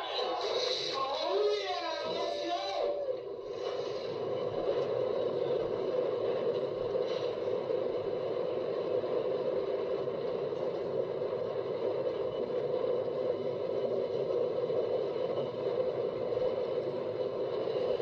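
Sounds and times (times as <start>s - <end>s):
roller coaster lift hill whir: 0.0s - 18.0s.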